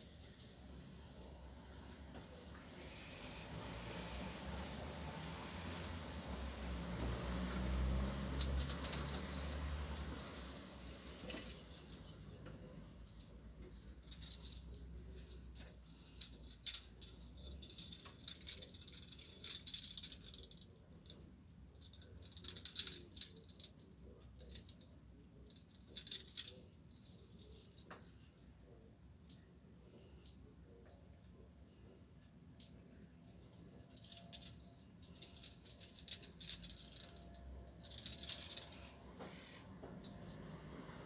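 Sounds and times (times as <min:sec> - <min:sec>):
metal handcuffs rattling: 0:07.6 - 0:21.2, 0:21.8 - 0:28.4, 0:32.6 - 0:41.0.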